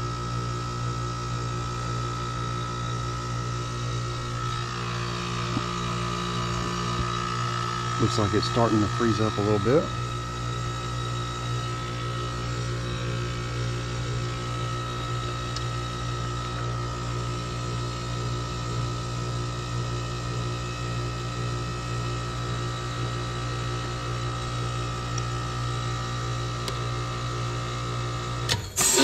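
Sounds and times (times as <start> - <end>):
compressor electrical hum: 0.0 - 29.0
hissing rush of valve: 28.8 - 29.0.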